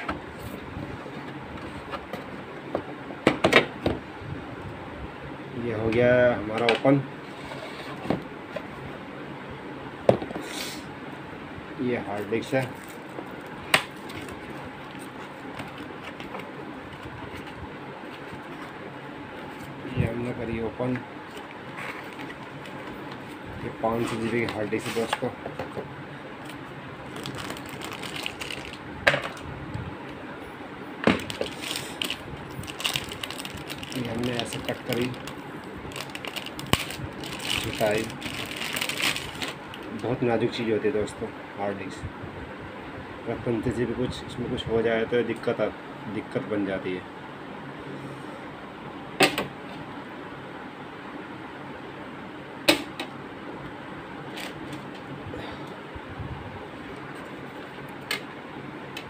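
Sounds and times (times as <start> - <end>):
plastic bag crinkling: 27.1 - 28.8, 31.2 - 40.0.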